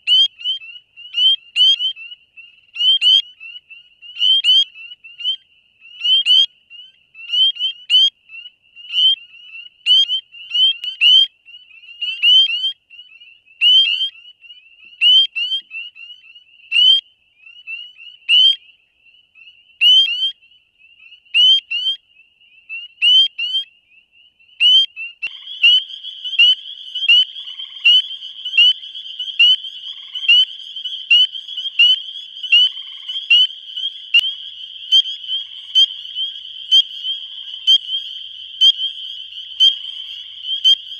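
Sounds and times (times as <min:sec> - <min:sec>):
spring peepers peeping: 0:24.4 - 0:40.9.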